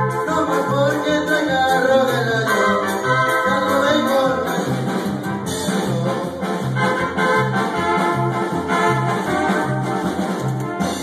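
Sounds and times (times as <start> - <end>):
bass line: 0.0 - 11.0
drum beat: 4.0 - 11.0.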